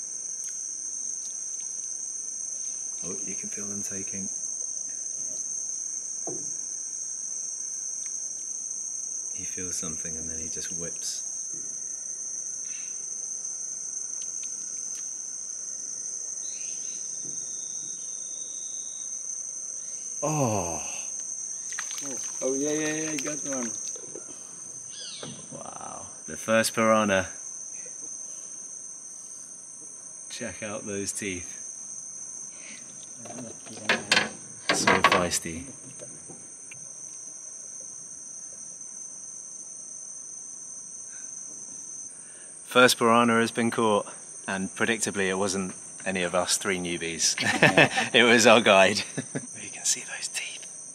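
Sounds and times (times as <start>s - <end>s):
faint hiss: 0.0s - 50.9s
insects droning: 0.0s - 50.9s.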